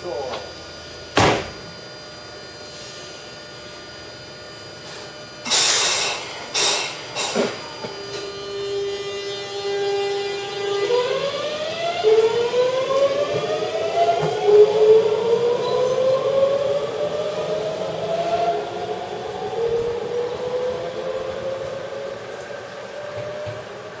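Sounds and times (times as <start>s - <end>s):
electric train motor whine: 0.0s - 24.0s
air hiss: 4.8s - 8.2s.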